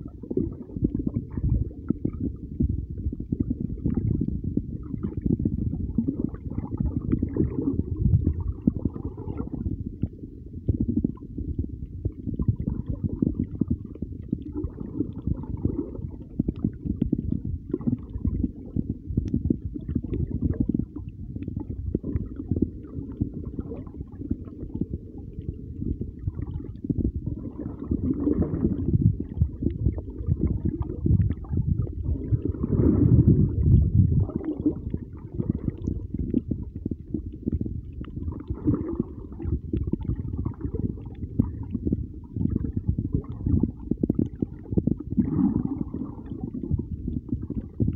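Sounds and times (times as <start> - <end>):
underwater rumble of moving water: 0.0 - 47.9.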